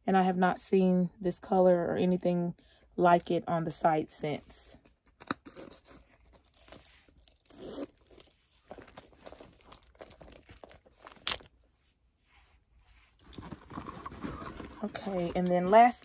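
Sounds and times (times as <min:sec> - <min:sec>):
leather pouches rustling: 0:05.4 - 0:11.9, 0:12.6 - 0:16.0.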